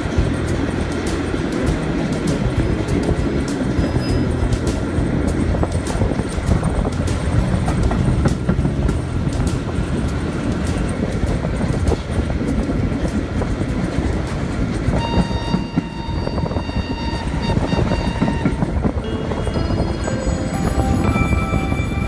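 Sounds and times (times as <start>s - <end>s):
train rumbling: 0.0s - 22.0s
wheels clicking over track: 0.0s - 22.0s
steady high tone: 15.0s - 22.0s.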